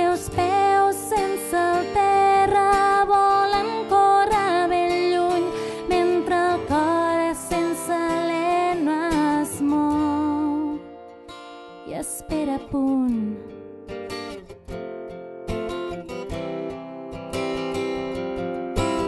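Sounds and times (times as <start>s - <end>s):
woman singing: 0.0s - 13.7s
acoustic guitar: 0.0s - 19.0s.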